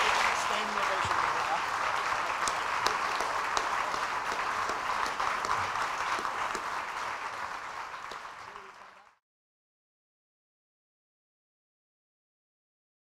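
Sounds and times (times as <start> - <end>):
audience applauding: 0.0 - 9.2.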